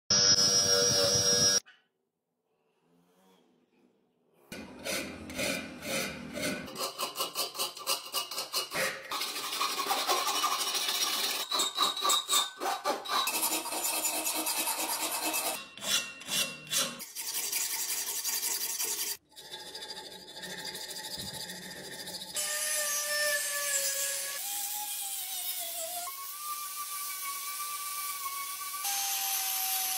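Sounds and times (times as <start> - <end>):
thin whine: 0.1 - 1.6
hand file rasping on steel: 4.5 - 19.2.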